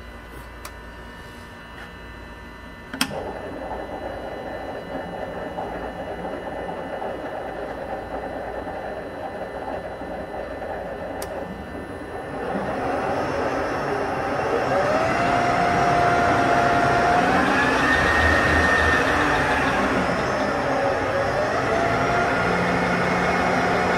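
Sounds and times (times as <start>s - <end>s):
whine rising in pitch: 2.5s - 23.9s
sharp click: 2.9s - 3.2s
lathe spindle running: 3.0s - 23.9s.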